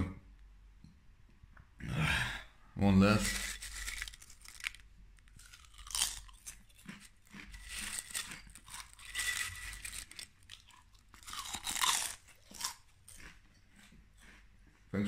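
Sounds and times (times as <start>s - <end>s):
potato chips crunching: 3.1s - 14.5s.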